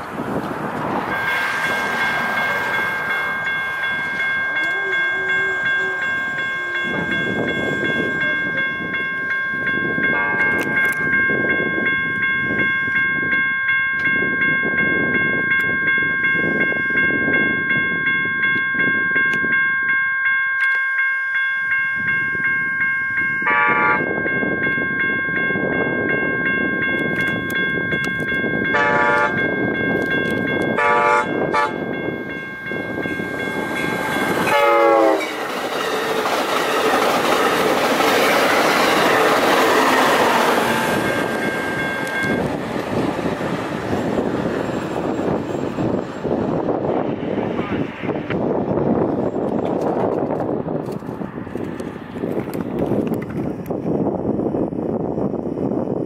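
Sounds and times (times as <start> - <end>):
electronic railroad crossing bell: 0.3 - 47.7
train horn: 4.6 - 7.3, 10.1 - 10.7, 23.4 - 24.1, 28.7 - 29.4, 30.8 - 31.9, 34.4 - 35.4.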